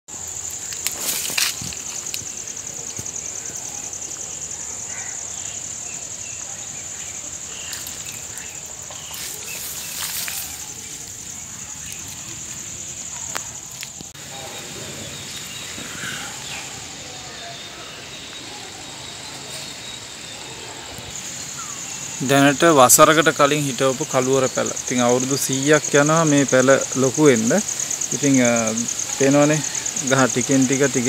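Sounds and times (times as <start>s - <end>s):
insects trilling: 0.1s - 31.0s
footsteps in dry leaves: 0.4s - 3.2s, 7.5s - 12.7s.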